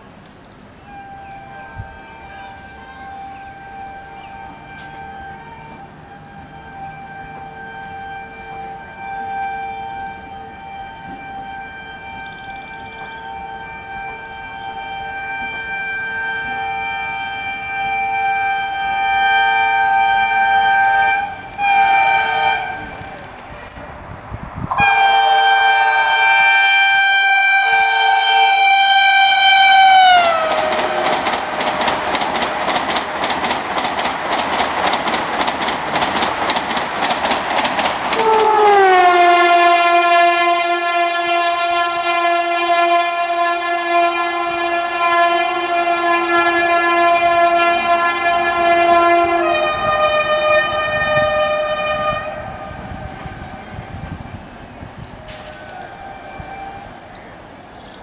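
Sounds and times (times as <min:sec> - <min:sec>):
train horn blasts: 0:00.8 - 0:24.0, 0:24.7 - 0:32.8, 0:38.2 - 0:54.4, 0:55.0 - 0:57.0
train wheels clattering: 0:29.6 - 0:39.0, 0:52.7 - 0:57.3.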